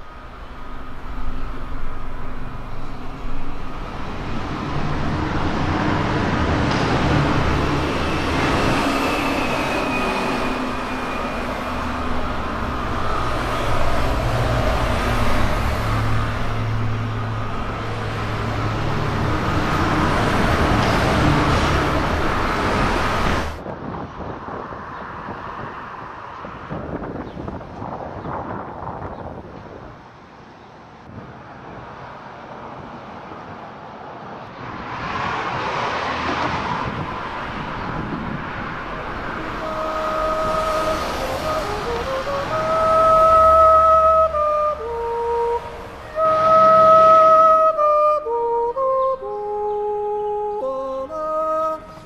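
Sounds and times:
low engine drone: 0.0s - 23.6s, 36.0s - 52.0s
wind-like noise: 0.0s - 48.4s
traffic rumble: 0.0s - 52.0s.

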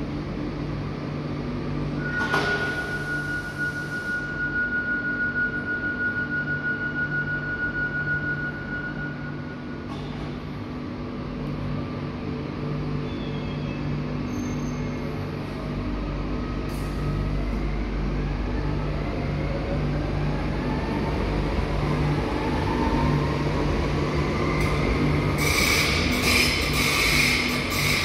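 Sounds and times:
electric train hum: 0.0s - 28.0s
wheels rumbling on rail: 8.3s - 28.0s.

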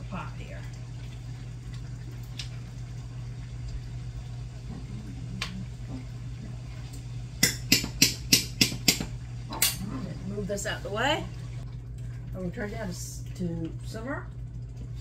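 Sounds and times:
steady low hum: 0.0s - 15.0s
metal spoon knocking on pot: 7.4s - 9.8s.

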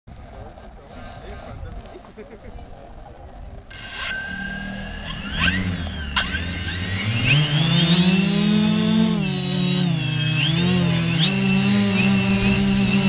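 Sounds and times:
drone propellers whining: 3.7s - 13.0s.

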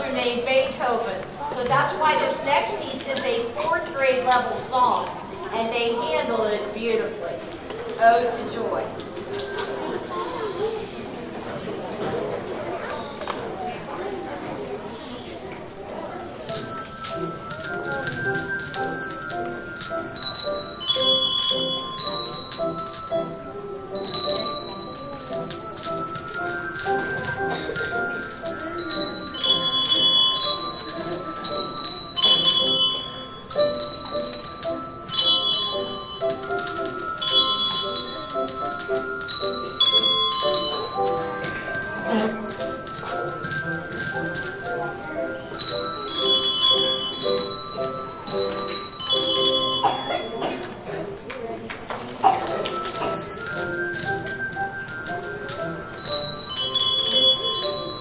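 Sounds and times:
voices: 0.0s - 58.0s
ringing bell melody: 9.3s - 10.2s, 15.9s - 50.6s, 52.4s - 58.0s.

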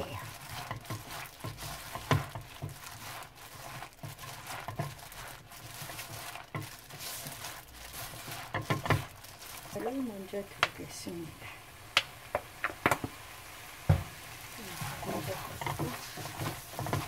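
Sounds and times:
plastic glove crinkling: 0.0s - 10.6s, 14.5s - 17.0s
wet greens rustling: 0.0s - 11.2s, 13.9s - 17.0s.

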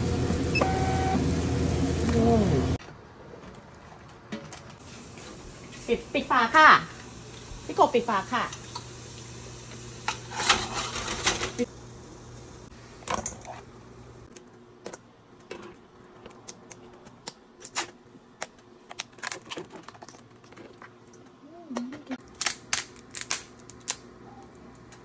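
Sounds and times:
crab shells cracking: 22.2s - 24.2s.

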